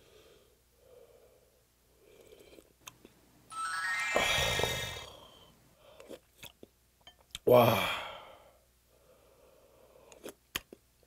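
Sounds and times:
shimmering chime run: 0:03.5 - 0:05.4.

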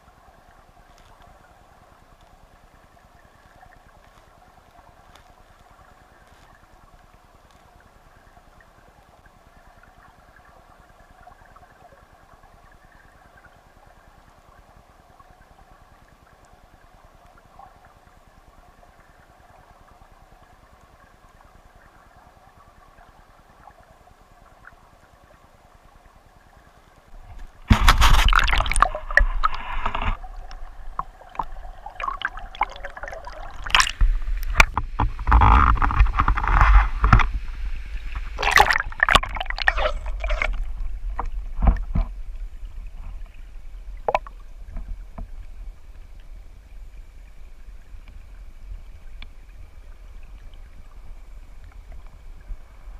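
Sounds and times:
stream water splashing: 0:27.1 - 0:52.9
underwater rushing current: 0:27.6 - 0:41.7.

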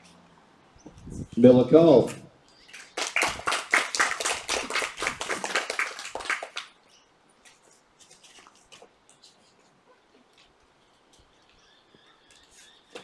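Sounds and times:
small audience clapping: 0:02.7 - 0:06.8.

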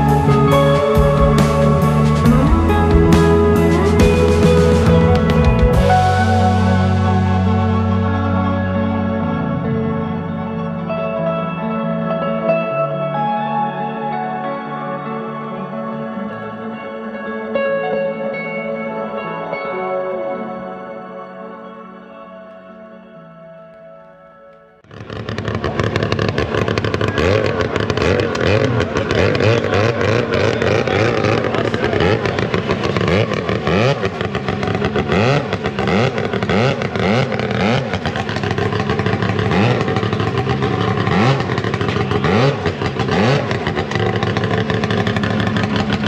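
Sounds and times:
snowmobile engine revving: 0:00.0 - 0:10.2, 0:24.8 - 0:46.0.

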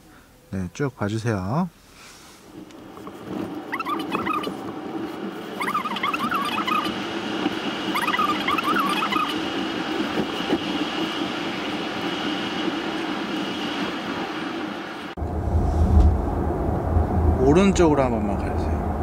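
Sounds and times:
road and tyre noise: 0:01.8 - 0:19.0
short high chirping squeaks: 0:03.7 - 0:04.6, 0:05.6 - 0:06.9, 0:07.9 - 0:09.4.

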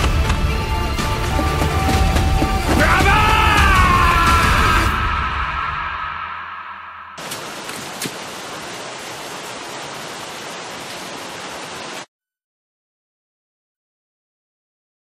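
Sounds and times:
heavy rain falling: 0:00.0 - 0:05.0, 0:07.2 - 0:12.1.

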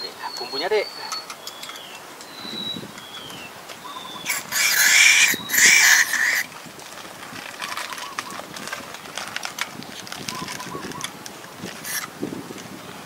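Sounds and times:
faint chirps: 0:00.0 - 0:06.2.

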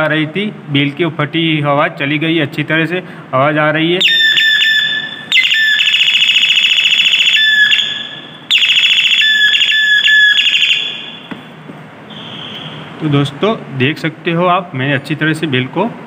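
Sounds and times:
electronic doorbell melody: 0:04.1 - 0:11.3.

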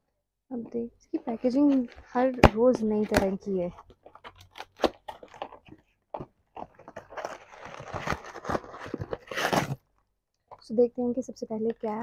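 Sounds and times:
packaging crackles and taps: 0:01.6 - 0:09.3
packaging crinkling and rustling: 0:03.0 - 0:09.9.

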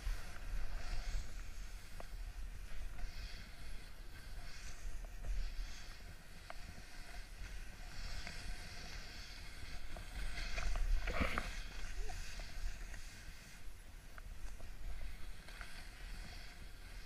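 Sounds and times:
skiing through powder snow hiss: 0:00.0 - 0:17.0.

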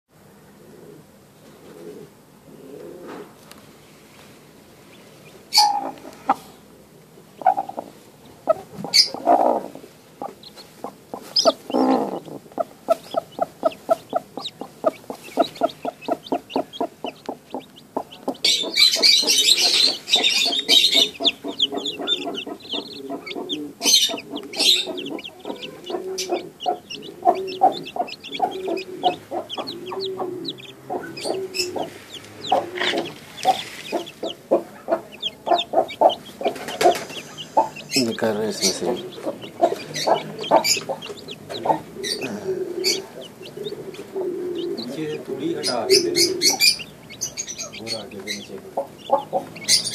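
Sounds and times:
chicks peeping: 0:02.8 - 0:49.9
hen clucking: 0:04.9 - 0:06.7, 0:07.3 - 0:49.9.

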